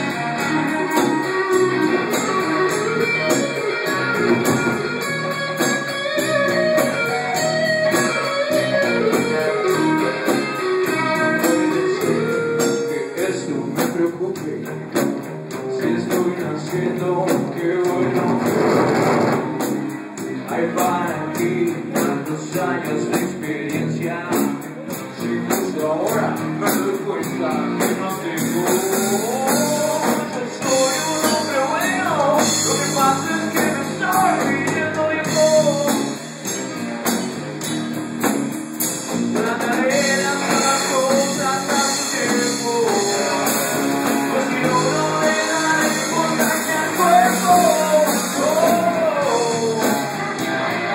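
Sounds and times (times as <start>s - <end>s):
bass guitar: 0.0s - 50.9s
drum kit: 0.0s - 50.9s
electric guitar: 0.0s - 50.9s
man singing: 8.4s - 15.0s, 15.6s - 18.6s, 20.2s - 36.3s, 39.3s - 50.9s.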